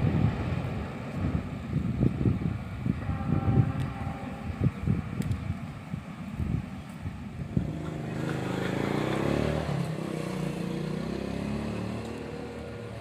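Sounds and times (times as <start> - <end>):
vehicle engine passing by: 7.5 - 13.0.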